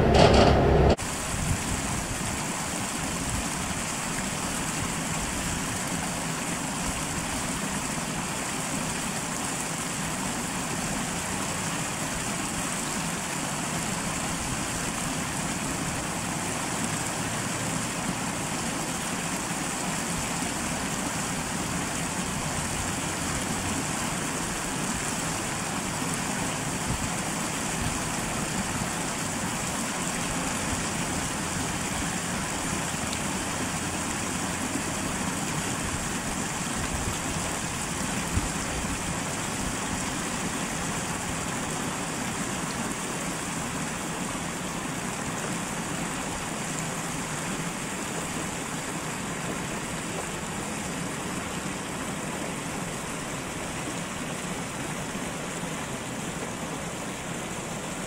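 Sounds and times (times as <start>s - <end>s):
diesel railcar rumble: 0.0s - 1.0s
constant hiss: 0.0s - 58.0s.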